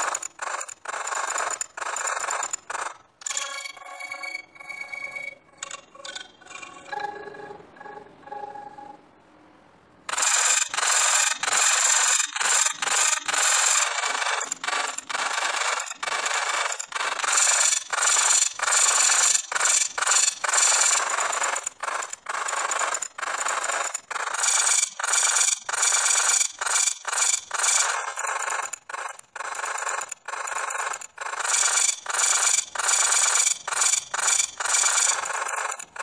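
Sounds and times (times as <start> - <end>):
faint tone: 3.3 - 9.5.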